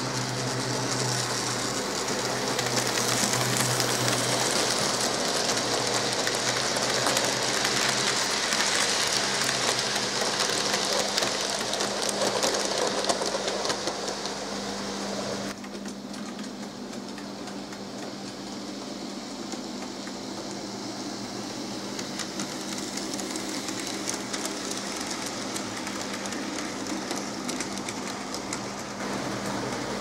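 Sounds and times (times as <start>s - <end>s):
model train wheels clattering: 0.0s - 14.4s, 21.8s - 30.0s
model locomotive motor whirr: 0.0s - 30.0s.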